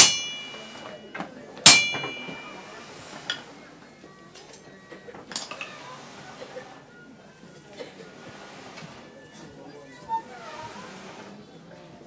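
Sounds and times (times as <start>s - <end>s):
hammer striking anvil: 0.0s - 2.8s.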